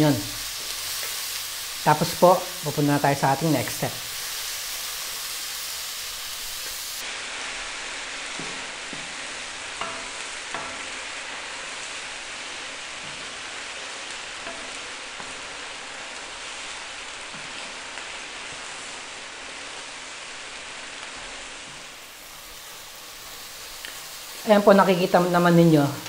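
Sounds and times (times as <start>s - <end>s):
vegetables sizzling in oil: 0.0s - 26.0s
spatula knocking pan: 9.8s - 11.0s, 14.4s - 15.4s.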